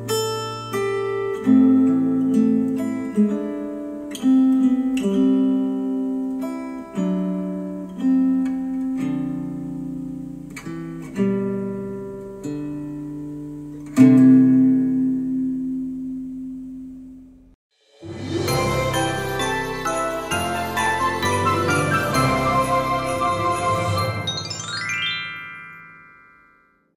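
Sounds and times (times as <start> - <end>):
acoustic guitar chords through speakers: 0.0 - 17.4.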